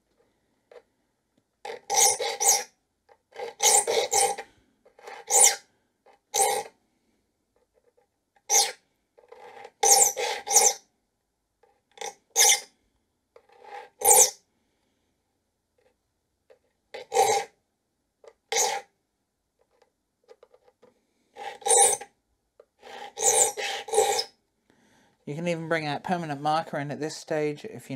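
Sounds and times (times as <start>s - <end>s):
file rasping on saw teeth: 1.7s - 2.7s, 3.3s - 4.4s, 5.0s - 5.6s, 6.3s - 6.7s, 8.5s - 10.8s, 12.4s - 12.7s, 13.5s - 14.4s, 17.0s - 17.5s, 18.5s - 18.9s, 21.4s - 22.0s, 22.8s - 24.3s.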